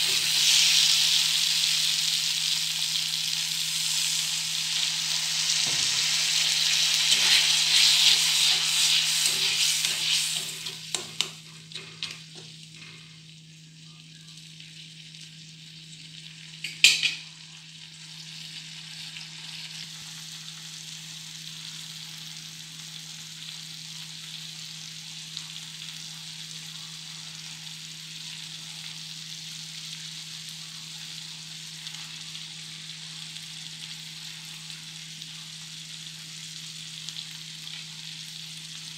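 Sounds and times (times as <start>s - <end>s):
gravy sizzling in a pan: 0.0s - 38.9s
metal spatula scraping a pan: 7.0s - 12.1s.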